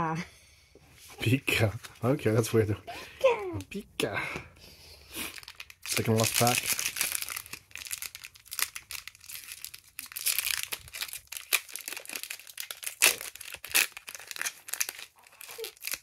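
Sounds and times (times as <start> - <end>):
foil wrapper crinkling and tearing: 5.1 - 16.0.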